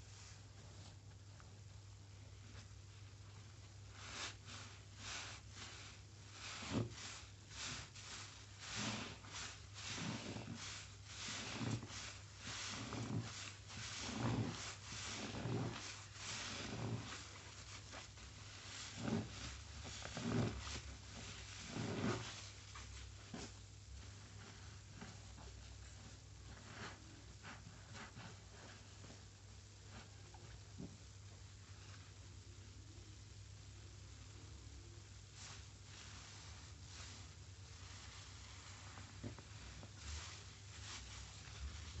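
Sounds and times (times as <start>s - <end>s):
wet sponge squelching: 3.8s - 29.3s, 35.3s - 42.0s.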